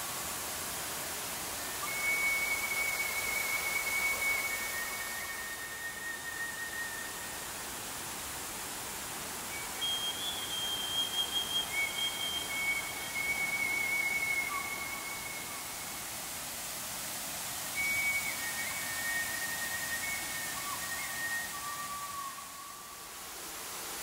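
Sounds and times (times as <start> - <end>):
high whistle-like tones: 0.0 - 24.0
river rapids rushing: 0.0 - 24.0.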